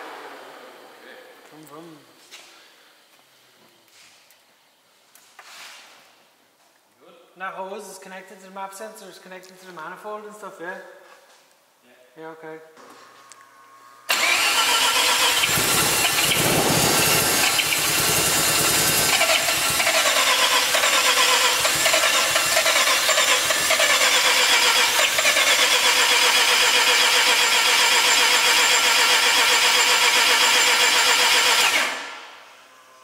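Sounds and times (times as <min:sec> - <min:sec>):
rotary engine cranking on starter: 0:14.1 - 0:32.2.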